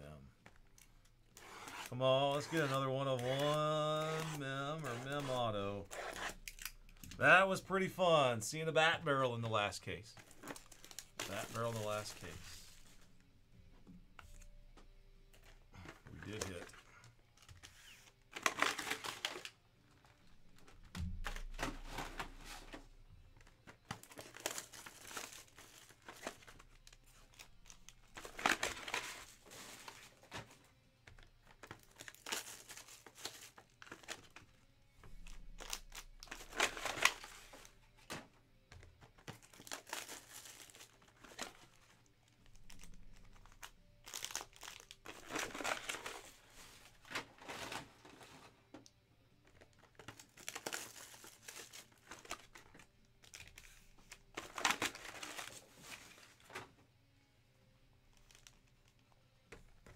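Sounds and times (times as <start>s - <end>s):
plastic shrink wrap crinkling and tearing: 10.2s - 12.7s, 17.3s - 20.6s, 23.8s - 30.3s, 31.2s - 34.4s, 39.2s - 47.9s, 49.6s - 56.4s, 58.1s - 59.1s.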